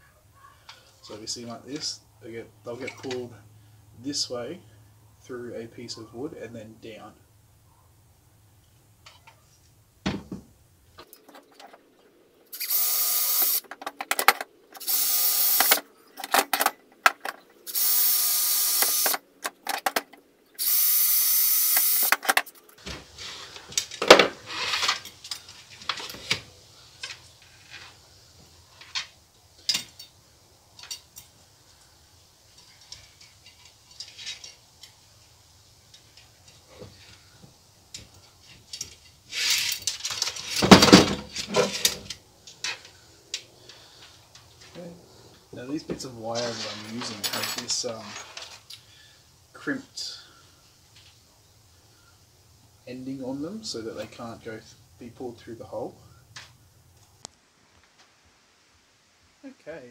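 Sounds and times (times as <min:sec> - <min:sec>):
power drill boring holes: 0:12.6 - 0:13.6, 0:14.8 - 0:15.8, 0:17.7 - 0:19.2, 0:20.6 - 0:22.1
clicks and knocks of parts handled: 0:13.4 - 0:17.6, 0:18.8 - 0:20.3, 0:21.7 - 0:28.0, 0:28.8 - 0:31.4, 0:35.9 - 0:44.8.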